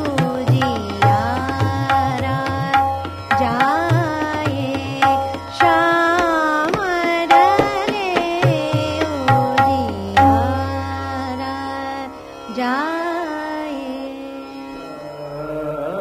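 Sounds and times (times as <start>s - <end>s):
tabla strokes: 0.0s - 10.8s
person singing classical melody: 0.0s - 16.0s.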